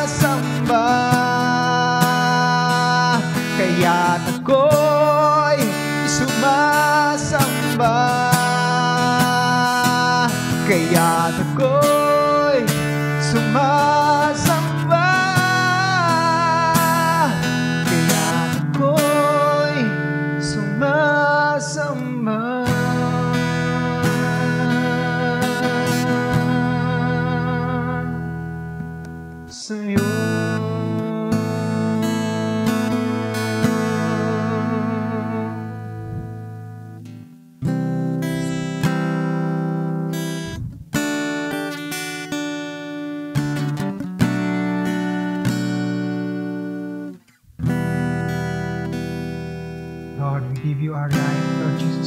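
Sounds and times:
man singing wordless notes: 0.0s - 36.5s, 50.1s - 52.0s
acoustic guitar strumming: 0.0s - 52.0s.

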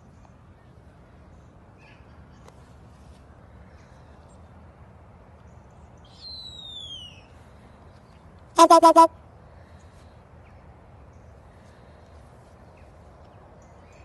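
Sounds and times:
raven whistle-like call: 6.2s - 7.3s, 8.6s - 9.1s.

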